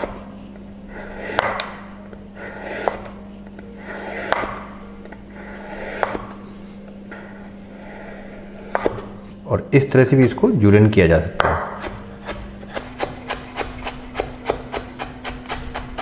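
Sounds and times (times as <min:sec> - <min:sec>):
low steady hum: 0:00.0 - 0:16.0
knife tapping cutting board: 0:11.4 - 0:15.9
knife slicing carrot: 0:11.4 - 0:16.0.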